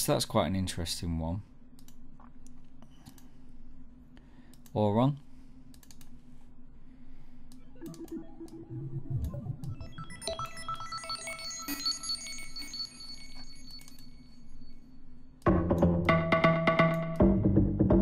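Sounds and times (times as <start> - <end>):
low held synth tone: 7.5 - 15.3
high sustained synth tones: 7.6 - 15.1.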